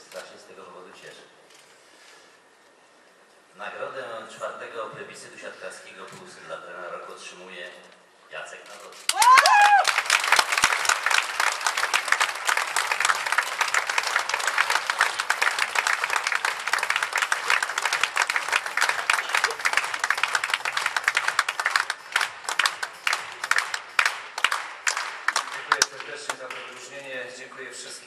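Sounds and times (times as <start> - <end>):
audience applauding: 9.1 - 26.9.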